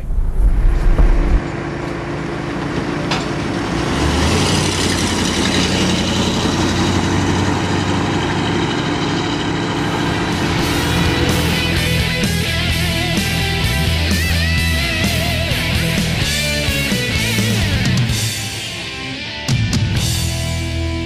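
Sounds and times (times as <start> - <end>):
low wind rumble: 0.0 - 1.8, 9.5 - 13.6
car engine running: 0.0 - 19.2
road noise: 0.0 - 21.0.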